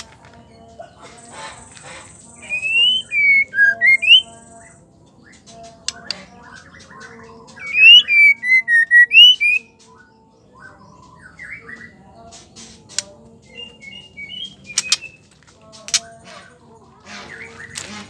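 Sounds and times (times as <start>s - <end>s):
bird twittering: 1.2s - 9.8s, 13.5s - 15.3s
bird whistling notes: 1.9s - 4.4s, 7.6s - 9.7s
sharp bird ticks: 5.6s - 6.7s, 14.7s - 15.1s, 15.8s - 16.2s.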